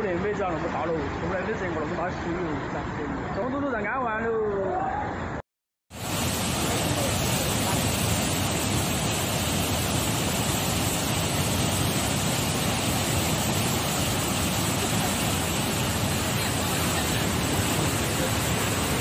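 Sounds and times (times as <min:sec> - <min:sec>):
river torrent rushing: 0:06.0 - 0:19.0.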